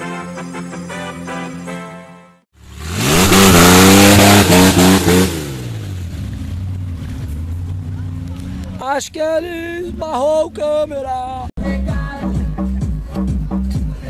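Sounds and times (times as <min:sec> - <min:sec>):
truck engine revving: 0:02.6 - 0:08.8
wheels churning through mud: 0:02.6 - 0:08.8
intro music: 0:11.6 - 0:14.0.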